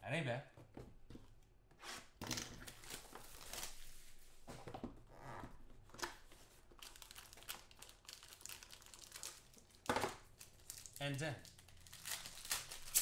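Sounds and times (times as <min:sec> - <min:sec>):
wrappers and cards crinkling: 0:06.6 - 0:13.0.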